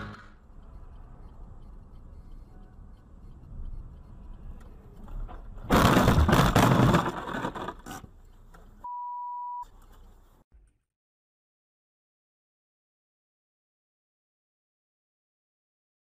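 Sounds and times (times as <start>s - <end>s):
loud crash impact: 5.7s - 7.2s
censor bleep: 8.8s - 9.7s.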